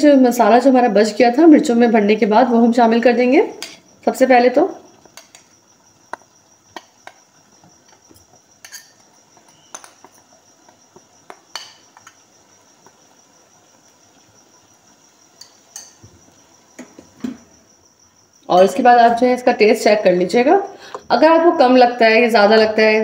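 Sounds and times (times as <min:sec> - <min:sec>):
spoon clinking on plate: 0:08.6 - 0:10.1.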